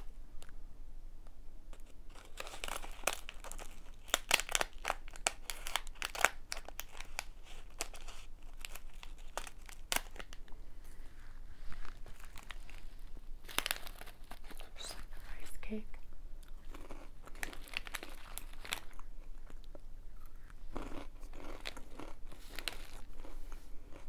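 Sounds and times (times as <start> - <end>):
plastic wrapper crinkling: 1.8 - 10.5, 11.7 - 15.4, 16.7 - 19.7, 21.6 - 23.3.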